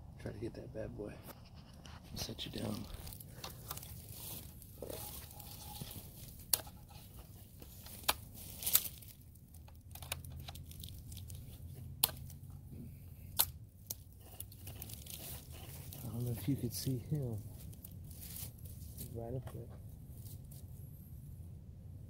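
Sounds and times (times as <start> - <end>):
fabric rustling and scraping: 1.3 - 9.2, 14.0 - 19.3.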